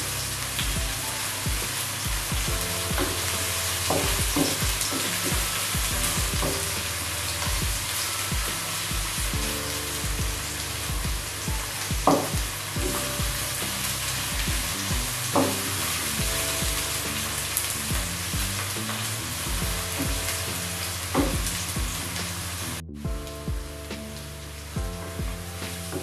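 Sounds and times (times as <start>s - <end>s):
vegetables sizzling in hot oil: 0.0s - 22.8s.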